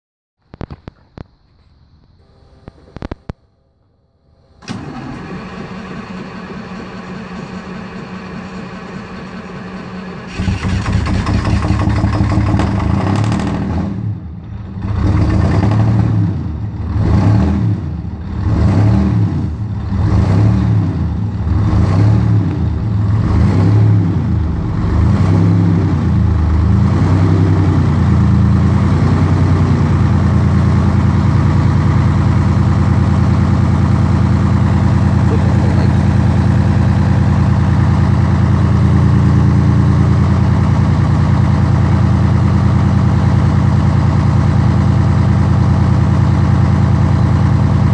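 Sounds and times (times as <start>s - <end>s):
diesel engine starting and idling: 2.2s - 47.9s.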